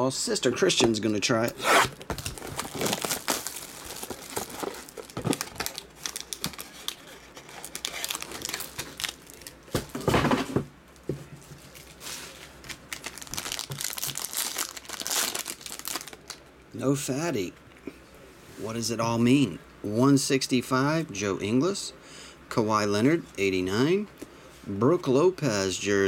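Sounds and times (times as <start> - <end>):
plastic wrap crinkling and tearing: 1.7 - 9.9, 11.6 - 16.4
foil pack ripping open: 1.8 - 9.6, 12.6 - 16.4.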